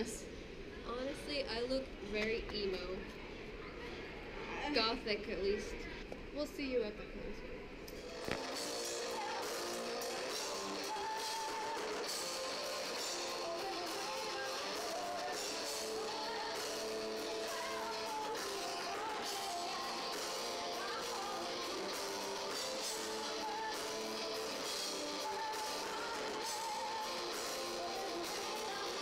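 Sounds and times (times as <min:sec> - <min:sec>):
woman singing: 0:08.8 - 0:29.0.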